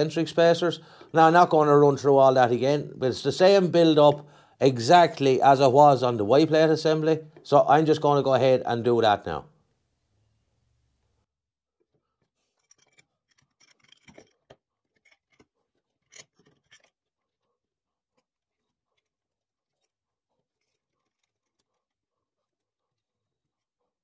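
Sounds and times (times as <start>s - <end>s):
metal bolts clicking and rattling: 12.6s - 17.0s.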